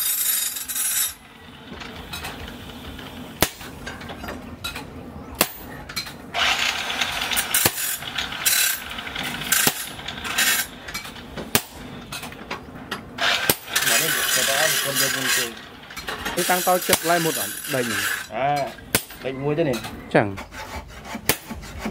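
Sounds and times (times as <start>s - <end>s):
hammer striking chisel on steel: 13.3s - 15.6s, 16.3s - 21.9s.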